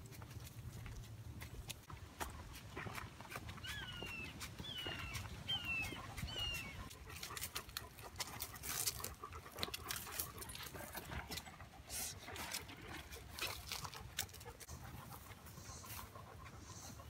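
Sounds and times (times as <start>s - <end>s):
footsteps on dirt trail: 0.0s - 11.0s.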